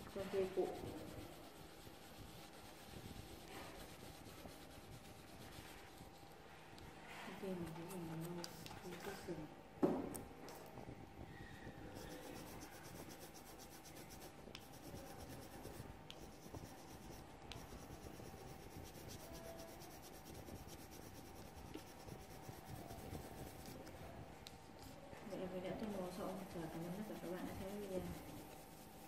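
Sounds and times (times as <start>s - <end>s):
pencil scratching on paper: 0.0s - 6.3s, 7.3s - 9.2s, 11.9s - 24.1s, 24.8s - 29.0s.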